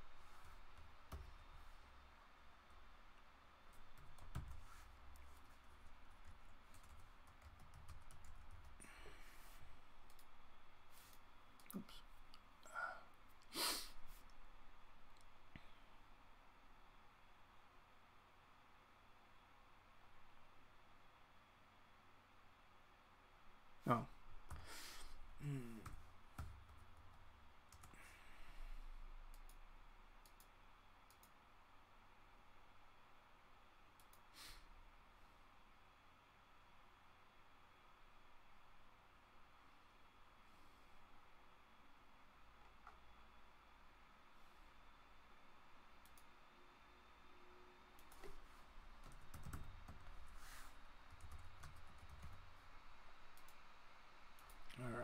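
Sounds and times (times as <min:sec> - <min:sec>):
computer mouse clicks: 0:10.0 - 0:10.3, 0:29.2 - 0:31.4, 0:34.0 - 0:34.2, 0:46.0 - 0:46.3, 0:48.0 - 0:48.4, 0:53.3 - 0:53.7, 0:54.4 - 0:54.8.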